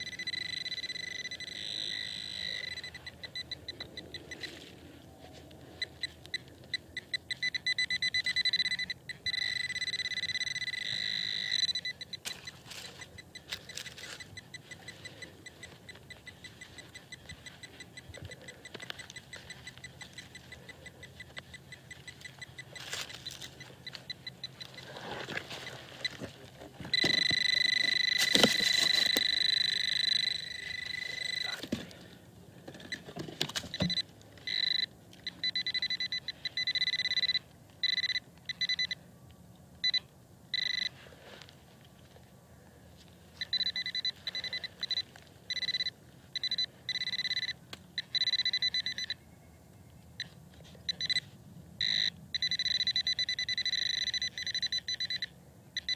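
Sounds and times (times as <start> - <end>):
metal detector beeping: 0.0 - 4.9, 5.5 - 39.0, 39.8 - 41.1, 43.4 - 49.5, 50.2 - 55.9.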